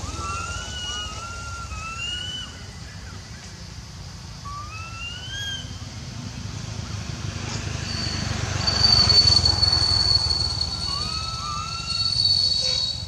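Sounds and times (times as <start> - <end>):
baby monkey crying: 0.0 - 2.6, 10.6 - 12.8
high-pitched whine: 0.0 - 13.0.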